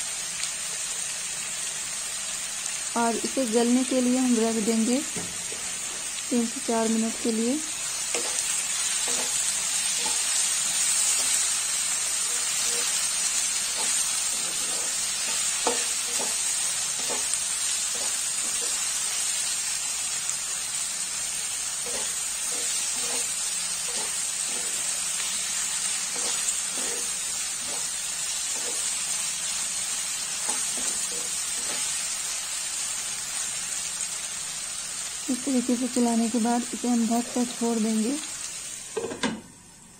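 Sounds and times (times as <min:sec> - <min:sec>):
masala sizzling in a pan: 0:00.0 - 0:39.9
spoon stirring and clicking on pan: 0:08.1 - 0:11.4, 0:13.7 - 0:18.8.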